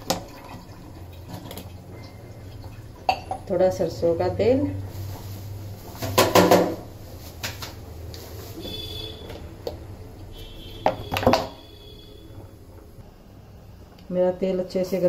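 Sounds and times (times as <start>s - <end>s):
bottle and pan knocking: 6.1s - 6.8s.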